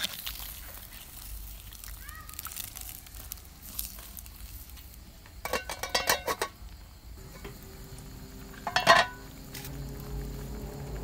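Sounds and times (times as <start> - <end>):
metal ladle clanking in a pot: 5.4 - 6.6, 8.6 - 9.2
metal lid clanking on a pot: 5.4 - 6.6, 8.6 - 9.2.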